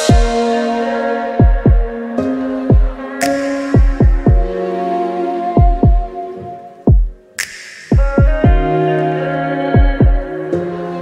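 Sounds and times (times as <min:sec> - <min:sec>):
held synth chords: 0:00.0 - 0:07.4
deep bass drum hits: 0:01.4 - 0:02.0, 0:03.8 - 0:04.6.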